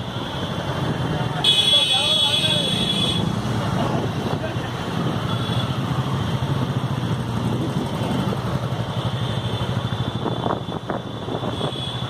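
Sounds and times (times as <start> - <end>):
motorcycle engines passing: 0.0 - 12.0.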